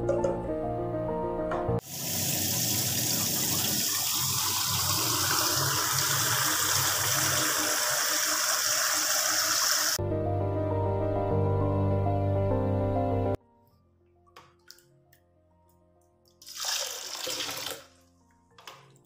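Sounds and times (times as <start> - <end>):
background music: 0.0 - 1.8, 10.0 - 19.0
water pouring into metal bowl: 1.8 - 10.0, 16.4 - 17.9.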